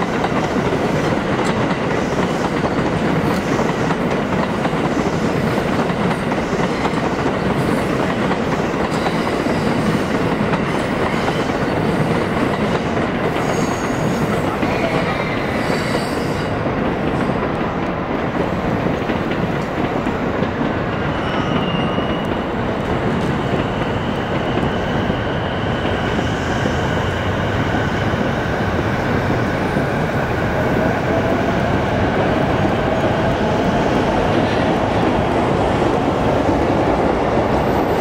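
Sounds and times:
train wheels rumbling: 0:00.0 - 0:38.0
faint high squeals: 0:21.0 - 0:22.6.

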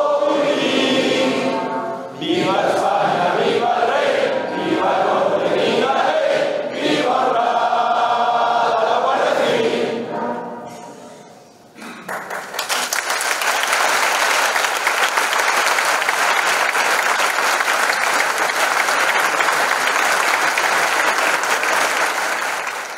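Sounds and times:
large audience applauding: 0:11.9 - 0:22.9.

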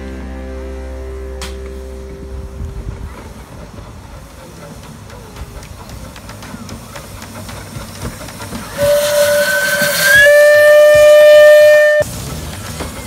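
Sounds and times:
locomotive rumbling on track: 0:00.0 - 0:13.0
steam locomotive whistle: 0:08.6 - 0:12.2.

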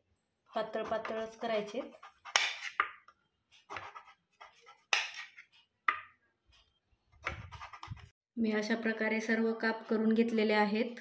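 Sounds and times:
knife cutting gourd: 0:00.8 - 0:06.2, 0:07.2 - 0:08.1.

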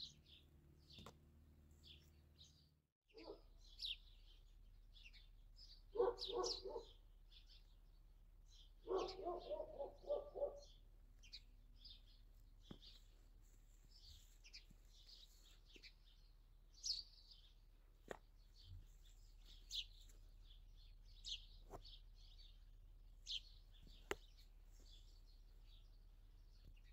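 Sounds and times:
small birds chirping: 0:00.0 - 0:26.9
dog barking: 0:03.1 - 0:03.5, 0:05.9 - 0:07.0, 0:08.8 - 0:10.7.

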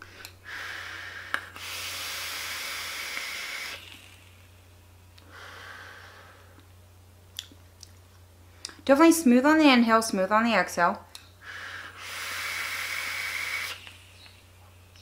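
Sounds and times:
breathy exhale: 0:00.0 - 0:03.8, 0:05.2 - 0:06.6, 0:11.4 - 0:13.8
vape draw hiss: 0:00.5 - 0:04.6, 0:11.8 - 0:14.6.

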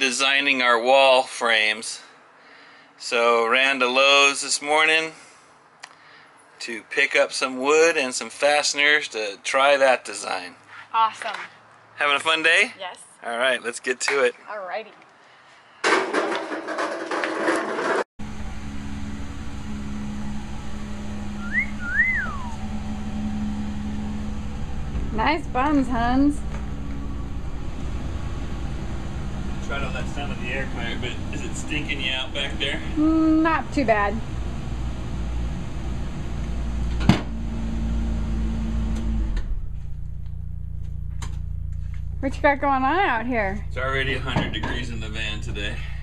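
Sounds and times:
rushing noise: 0:18.2 - 0:33.0
low steady tone: 0:18.2 - 0:36.8, 0:39.2 - 0:46.0
low hum: 0:18.2 - 0:46.0
air conditioning blowing: 0:18.6 - 0:39.9, 0:41.0 - 0:46.0
person wolf whistling: 0:21.4 - 0:22.7.

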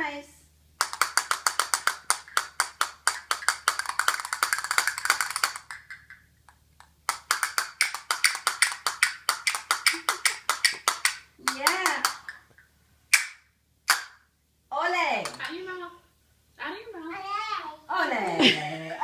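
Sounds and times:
castanets clicking: 0:00.8 - 0:14.1.

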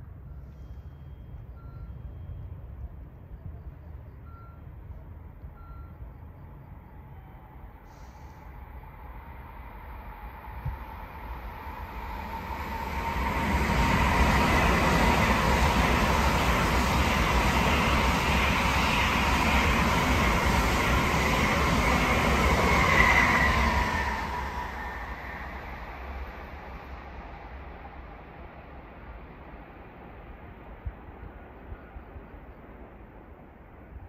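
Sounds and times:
train whine: 0:00.0 - 0:34.0
high-speed train rushing past: 0:05.0 - 0:34.0.

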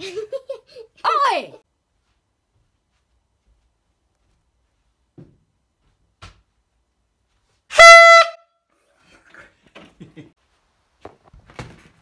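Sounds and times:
air horn blast: 0:07.7 - 0:08.5.

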